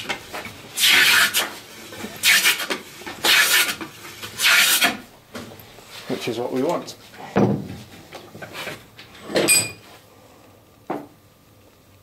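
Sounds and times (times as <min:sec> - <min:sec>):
plane shaving wood: 0:00.8 - 0:05.0.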